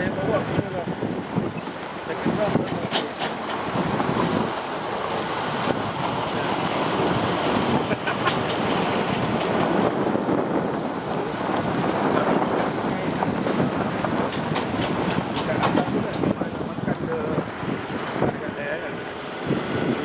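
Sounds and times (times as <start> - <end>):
moving vehicle running noise: 0.0 - 20.0
wind buffeting microphone: 0.0 - 20.0.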